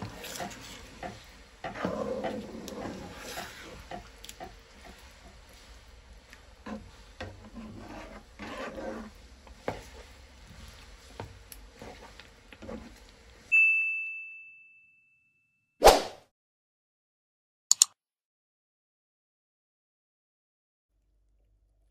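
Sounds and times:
spatula scraping frying pan: 0:00.0 - 0:13.5
electronic ding: 0:13.5 - 0:15.5.

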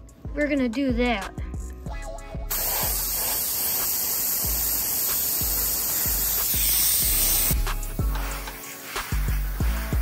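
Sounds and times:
music with steady beat: 0:00.0 - 0:10.0
airbrush spraying hiss: 0:02.5 - 0:10.0.

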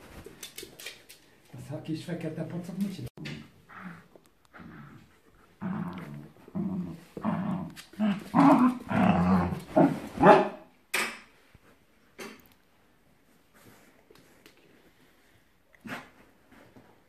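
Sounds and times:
dogs play-growling and barking: 0:03.4 - 0:10.4.

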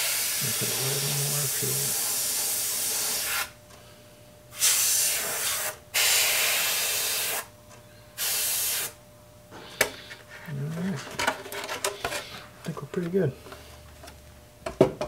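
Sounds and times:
airbrush spraying hiss: 0:00.0 - 0:03.5, 0:04.6 - 0:07.5, 0:08.2 - 0:09.0.

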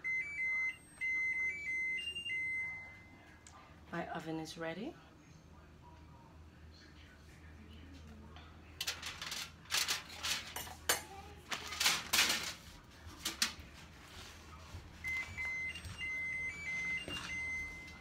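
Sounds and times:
aluminium foil crinkling: 0:08.8 - 0:15.3.

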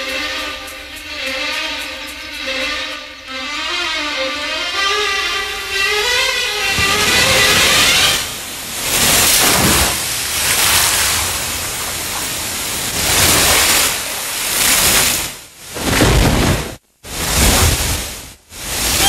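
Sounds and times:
rain and storm over loudspeakers: 0:05.2 - 0:19.0.

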